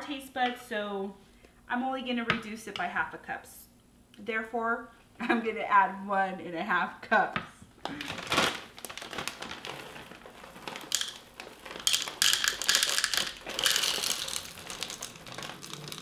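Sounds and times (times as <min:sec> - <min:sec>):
plastic bag crinkling: 0:07.9 - 0:16.0
chips rattling into cup: 0:08.8 - 0:16.0.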